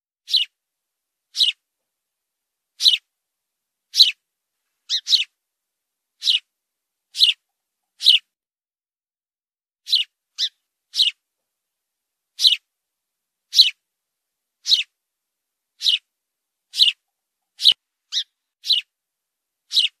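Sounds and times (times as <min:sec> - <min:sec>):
sparrow chirping: 0:00.2 - 0:00.6, 0:01.3 - 0:01.6, 0:02.8 - 0:03.1, 0:03.9 - 0:04.2, 0:04.8 - 0:05.4, 0:06.2 - 0:06.5, 0:07.1 - 0:08.3, 0:09.8 - 0:11.2, 0:12.4 - 0:12.7, 0:13.5 - 0:13.8, 0:14.6 - 0:15.0, 0:15.8 - 0:16.1, 0:16.7 - 0:18.9, 0:19.6 - 0:20.0.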